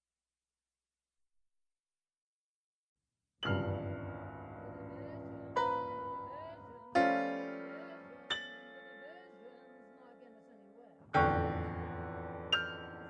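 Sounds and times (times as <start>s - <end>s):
slow piano chords: 3.4s - 13.0s.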